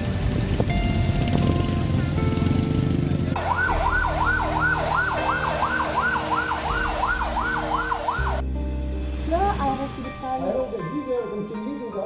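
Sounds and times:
fire truck siren yelping: 0:03.4 - 0:08.4.

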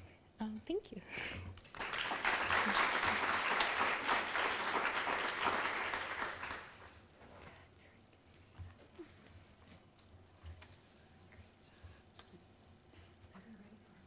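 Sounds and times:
audience applauding: 0:01.6 - 0:07.0.

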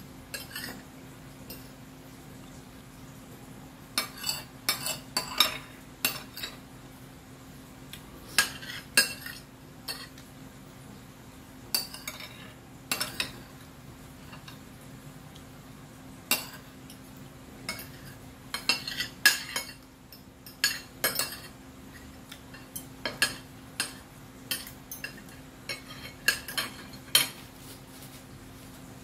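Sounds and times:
forks clinking on a plate: 0:04.0 - 0:06.6, 0:08.4 - 0:10.2, 0:11.7 - 0:13.4, 0:17.7 - 0:21.6, 0:22.3 - 0:27.4.

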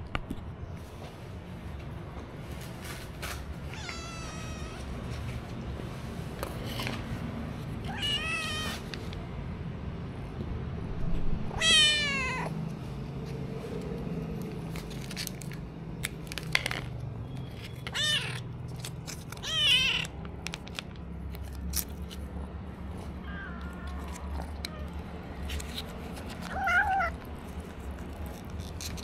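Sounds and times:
kittens meowing: 0:03.7 - 0:04.9, 0:07.9 - 0:08.8, 0:11.5 - 0:12.6, 0:17.9 - 0:18.4, 0:19.4 - 0:20.1, 0:23.2 - 0:25.0, 0:26.4 - 0:27.2.

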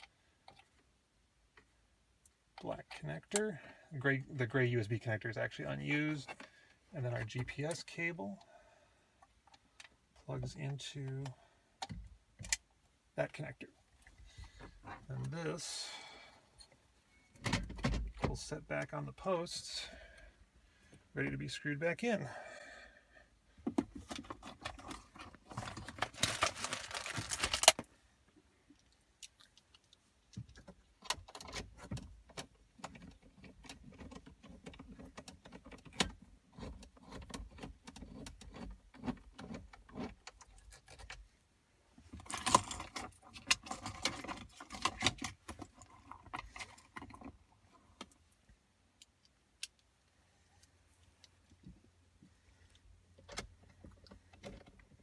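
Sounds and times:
handling noise: 0:23.6 - 0:27.9.

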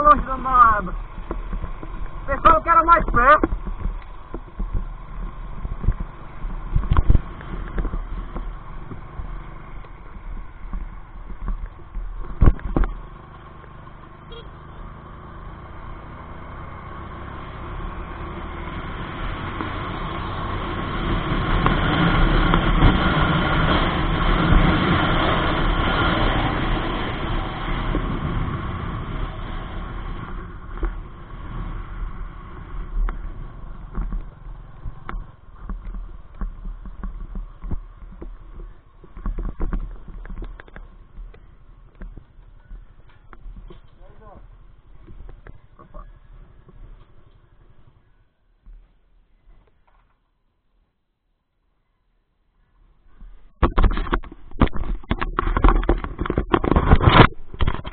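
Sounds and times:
motorcycle engine: 0:00.0 - 0:50.2
wind on microphone: 0:53.1 - 0:57.9.

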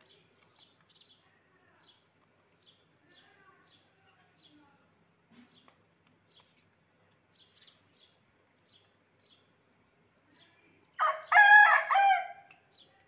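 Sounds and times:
rooster crowing: 0:11.0 - 0:12.5.

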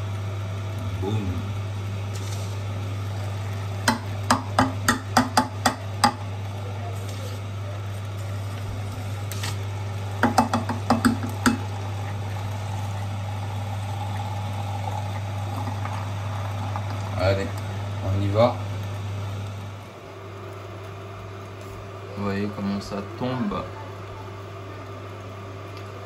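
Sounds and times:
juice extractor humming: 0:00.0 - 0:26.0.

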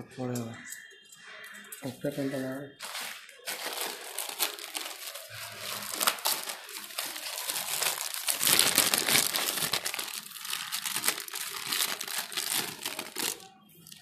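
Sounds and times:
plastic bag crinkling: 0:02.8 - 0:14.0.

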